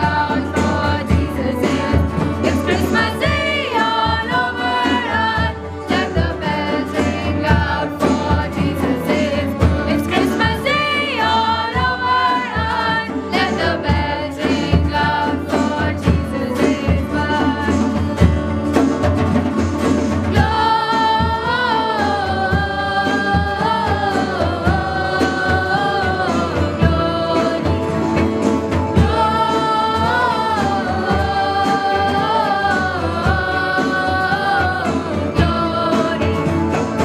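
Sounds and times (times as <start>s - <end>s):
young voices singing a carol: 0.0s - 19.1s, 20.1s - 37.0s
acoustic guitar: 0.0s - 37.0s
hand drums: 0.0s - 37.0s
keyboard: 0.0s - 37.0s.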